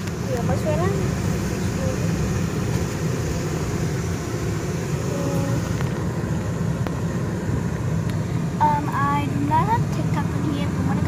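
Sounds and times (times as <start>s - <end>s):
diesel truck engine rumble: 0.0s - 11.0s.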